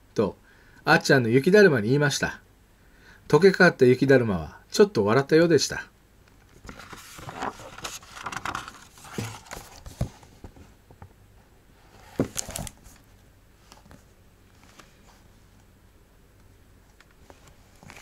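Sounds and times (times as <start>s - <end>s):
book pages rustling: 6.4s - 10.7s, 11.9s - 15.4s, 16.8s - 18.0s
book closing flap: 6.6s - 10.3s, 12.0s - 13.0s, 17.0s - 18.0s.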